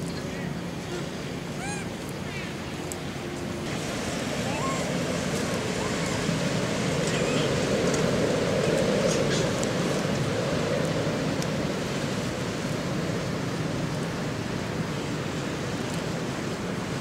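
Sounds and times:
steady rushing noise: 0.0 - 17.0.

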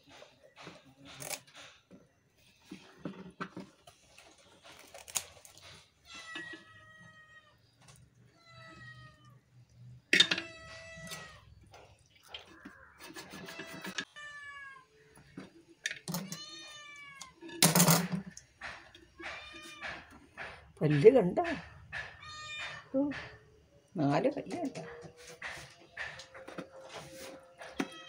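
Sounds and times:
cat meowing: 6.1 - 7.6, 8.3 - 9.4, 12.6 - 15.0, 16.2 - 17.5, 19.2 - 20.1, 22.2 - 22.9.

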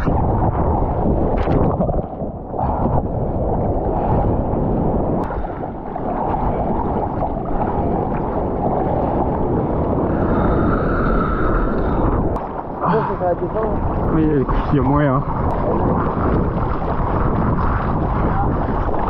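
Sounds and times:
sea water rushing and sloshing: 0.0 - 19.0
wind buffeting microphone: 0.0 - 19.0.

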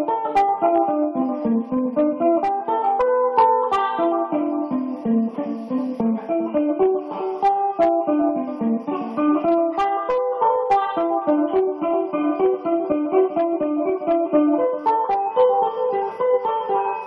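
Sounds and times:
guitar picked notes: 0.0 - 17.0.

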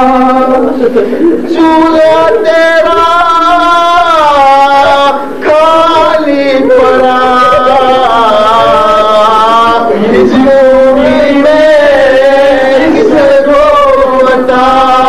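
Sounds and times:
men chanting a lament: 0.0 - 15.0.

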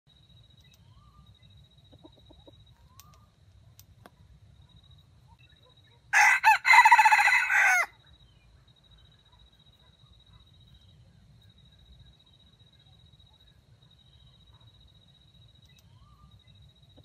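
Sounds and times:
rooster crowing: 6.1 - 8.0.

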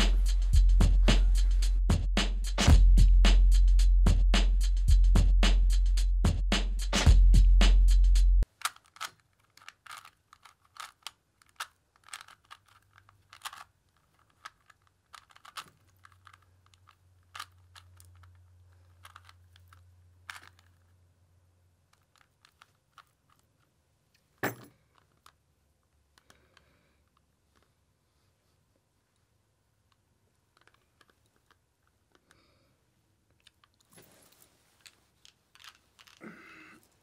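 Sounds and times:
plastic cube clicking as twisted: 8.4 - 20.9, 21.9 - 23.7, 29.9 - 32.4, 33.3 - 33.9, 34.8 - 36.2.

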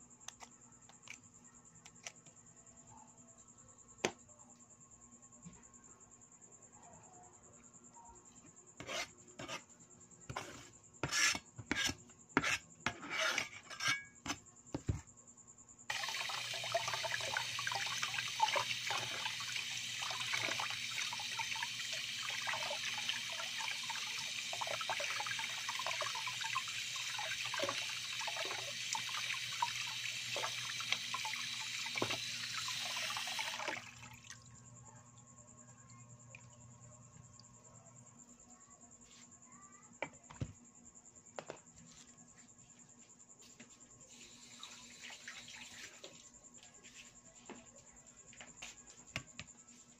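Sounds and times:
knocks and scrapes: 8.8 - 9.7, 10.3 - 15.1
tap running into plastic tub: 31.9 - 32.6.

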